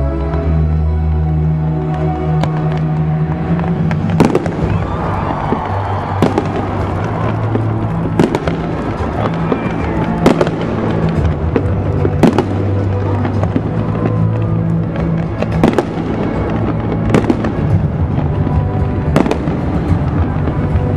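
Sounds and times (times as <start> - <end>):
music with low bass: 0.0 - 20.9
fireworks cracking: 1.9 - 20.9.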